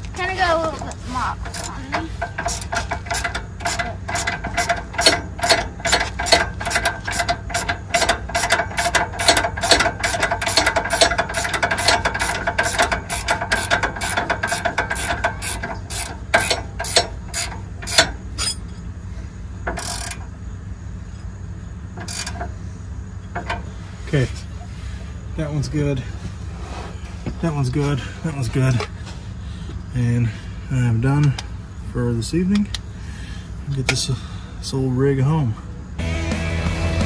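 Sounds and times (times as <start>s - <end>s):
ratchet wrench clicking: 1.4s - 18.7s, 19.6s - 20.3s, 22.0s - 22.5s.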